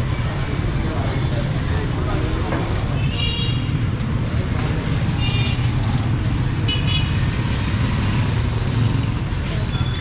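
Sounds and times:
motorcycle and car engines: 3.9 - 10.0.

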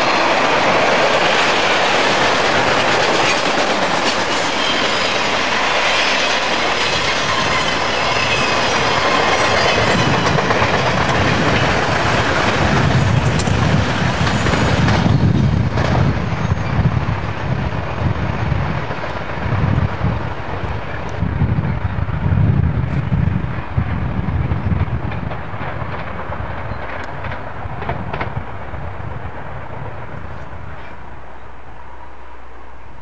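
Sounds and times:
train wheels clattering over rail joints: 0.0 - 17.7, 24.6 - 31.0
low train rumble: 0.0 - 33.0.

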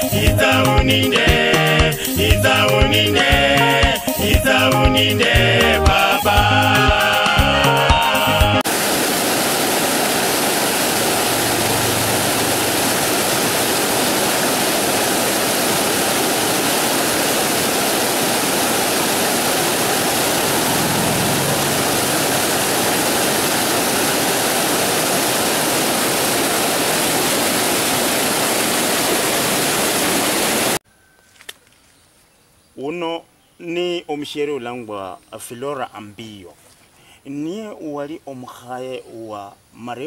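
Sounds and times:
water pouring over rocks: 8.7 - 20.7.

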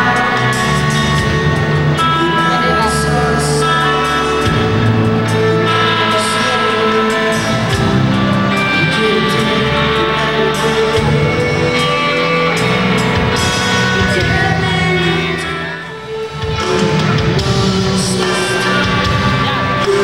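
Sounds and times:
live rock band playing: 0.0 - 20.0.

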